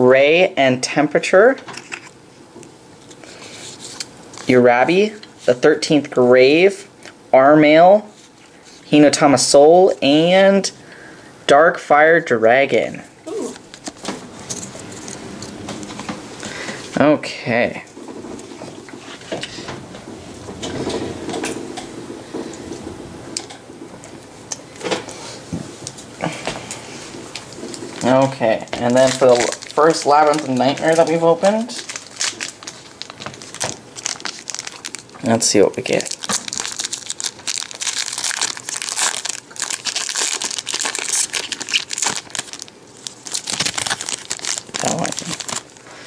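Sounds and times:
foil packs rustling: 26.2s - 46.0s.

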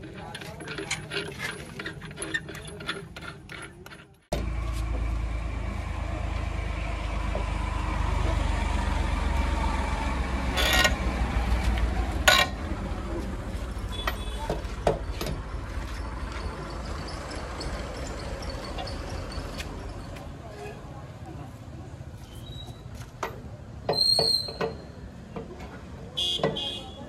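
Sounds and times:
heavy diesel engine droning: 4.4s - 14.4s.

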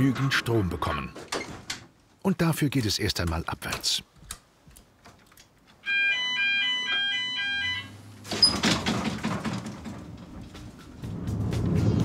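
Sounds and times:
alternating warning beeps: 5.8s - 8.1s
lift car rattling: 6.6s - 11.2s
loud mechanical clunk: 8.2s - 10.8s.

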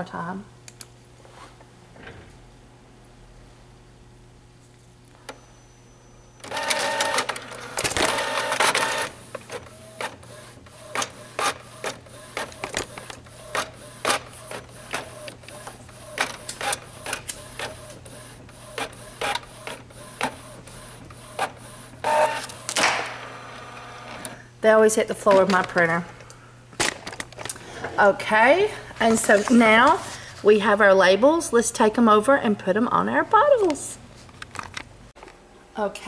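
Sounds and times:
printer paper feed whir: 6.4s - 24.4s.

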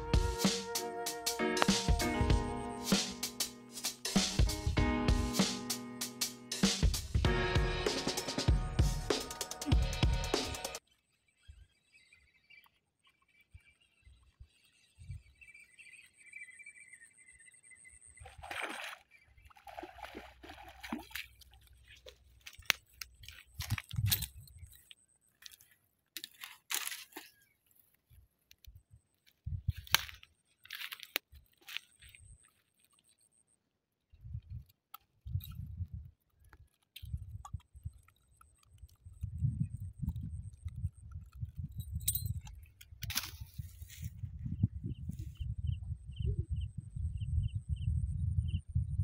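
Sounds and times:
fish splashing in water: 18.2s - 22.2s
hands clicking and rustling: 21.4s - 33.2s.

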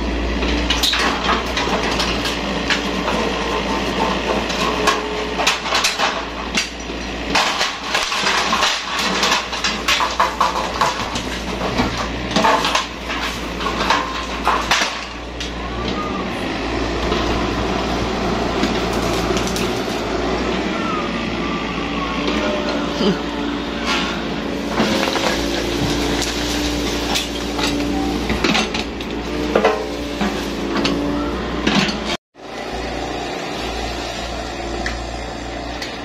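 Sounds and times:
breaking timber crashes: 0.0s - 15.7s, 16.9s - 20.4s, 23.8s - 31.0s
diesel engine running: 0.0s - 36.0s.

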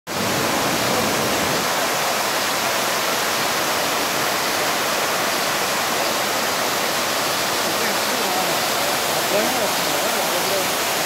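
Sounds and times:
waterfall rushing: 0.1s - 11.0s.

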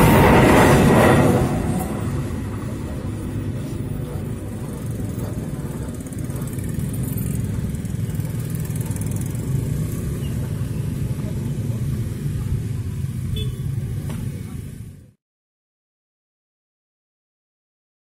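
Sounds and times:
motorcycle engines idling and pulling away: 2.1s - 15.1s.

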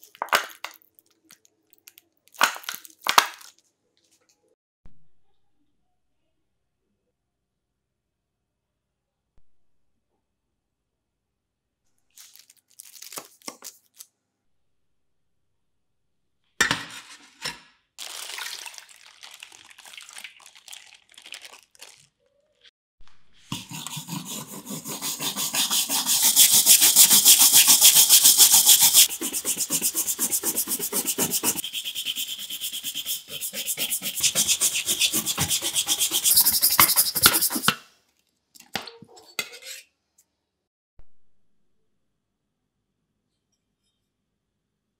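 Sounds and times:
liquid splashing: 18.0s - 22.2s
stiff brush scrubbing metal blade: 23.5s - 37.8s.

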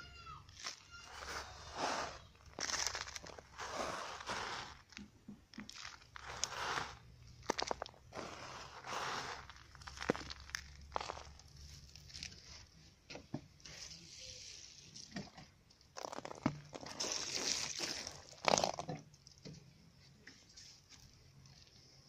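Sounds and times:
water splashing onto soil: 16.0s - 18.8s.

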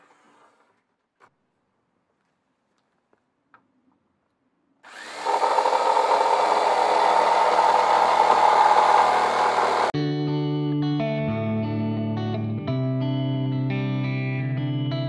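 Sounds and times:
jigsaw cutting wood: 4.8s - 9.9s.

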